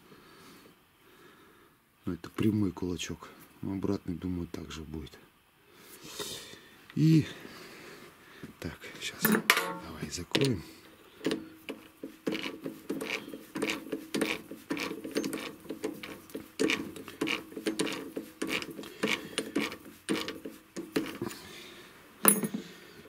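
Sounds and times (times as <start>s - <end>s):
sharp metallic clack: 9.3s - 9.9s
lathe chuck clicking and rattling: 11.2s - 21.4s.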